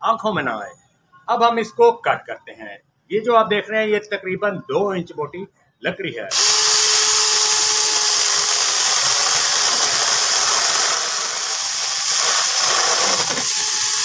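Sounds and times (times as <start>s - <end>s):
chainsaw cutting branch: 6.4s - 14.0s.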